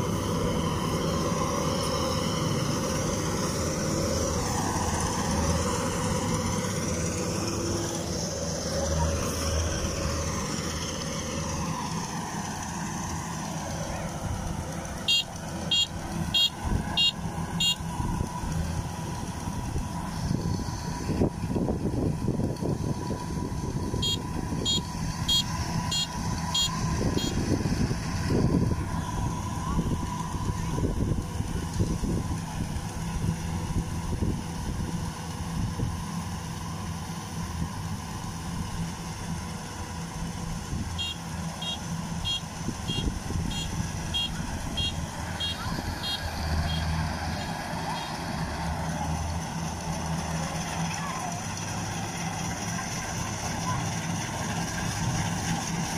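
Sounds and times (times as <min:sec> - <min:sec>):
diesel engine running: 0:00.0 - 0:55.9
high electronic warning beeps: 0:15.1 - 0:17.8, 0:24.0 - 0:27.4, 0:41.0 - 0:46.9.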